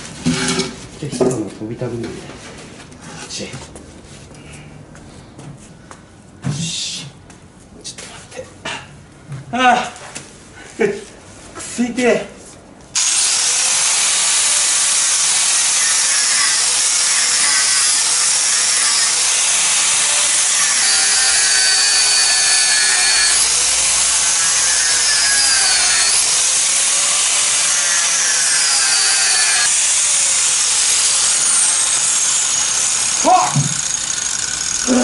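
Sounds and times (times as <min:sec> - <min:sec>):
angle grinder grinding steel: 0:13.0 - 0:35.0.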